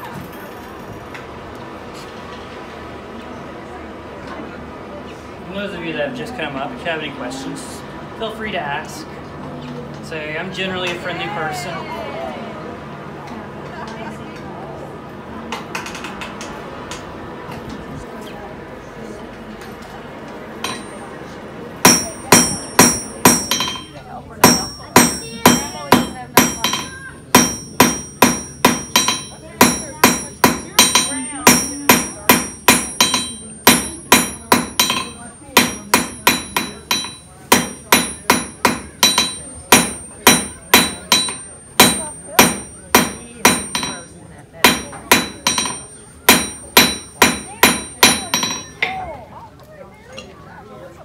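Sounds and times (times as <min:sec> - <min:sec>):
hammer striking iron on anvil: 0:20.6 - 0:21.1, 0:21.8 - 0:49.0.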